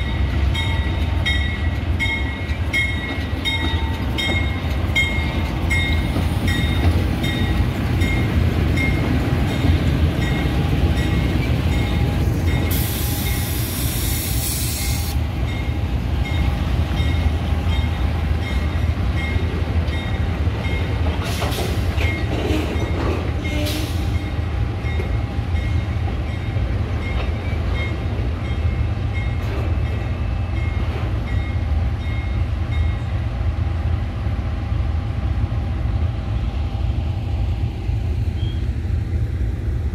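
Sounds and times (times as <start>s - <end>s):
diesel locomotive engines rumbling: 0.0s - 39.9s
air hissing: 12.7s - 15.2s.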